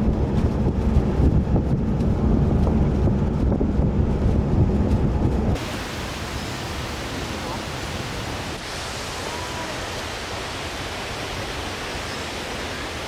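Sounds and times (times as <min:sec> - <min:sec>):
wind buffeting the microphone: 0:00.0 - 0:13.0
even hiss: 0:05.6 - 0:13.0.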